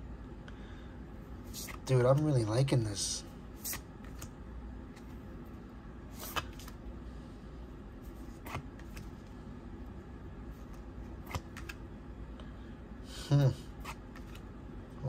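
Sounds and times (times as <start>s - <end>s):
low steady hum: 0.0s - 15.0s
cards flicking and clicking: 1.5s - 2.3s, 3.6s - 5.2s, 6.1s - 6.9s, 8.1s - 9.3s, 10.6s - 11.9s, 13.8s - 14.5s.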